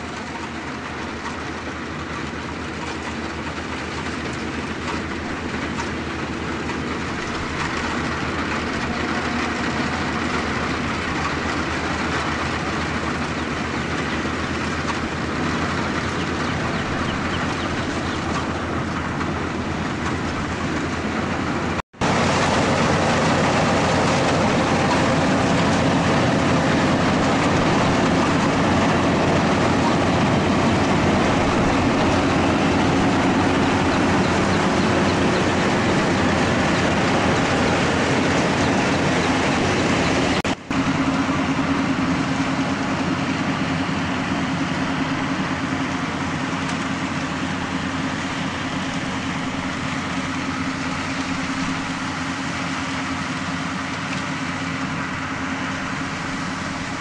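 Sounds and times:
combine harvester diesel engine drone: 0.0 - 57.0
mechanical rush of threshing: 0.0 - 57.0.

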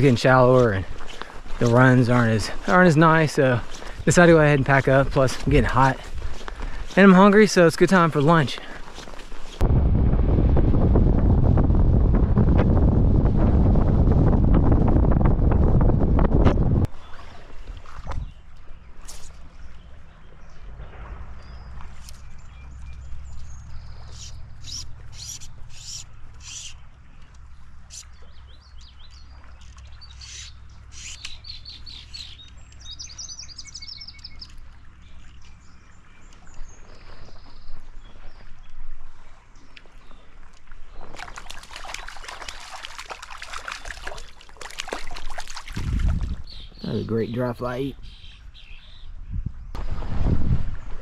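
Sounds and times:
birds chirping: 0.0 - 9.5, 18.0 - 39.0, 46.2 - 49.8
low steady rumble: 9.6 - 16.9
fish splashing at water surface: 41.0 - 46.4.

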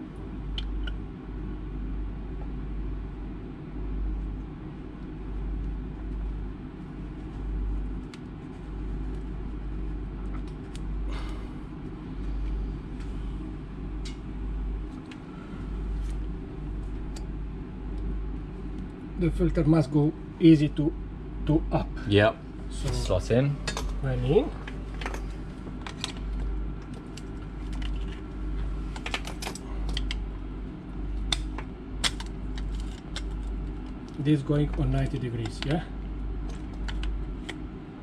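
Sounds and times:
engine room machinery rumble: 0.0 - 38.0
faint clicks and scrapes: 24.7 - 30.2, 32.2 - 34.1.

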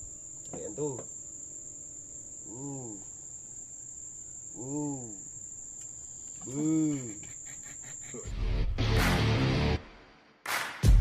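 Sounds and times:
high-pitched insect trill: 0.0 - 8.4
short hooting calls: 2.2 - 8.3.

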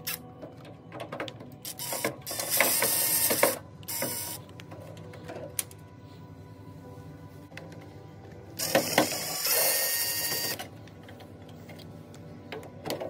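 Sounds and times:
cordless drill spinning: 8.6 - 10.6.

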